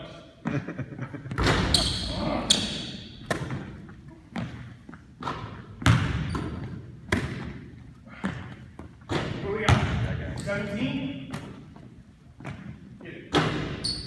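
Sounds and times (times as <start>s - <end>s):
basketballs bouncing on wood floor: 1.3s - 14.0s.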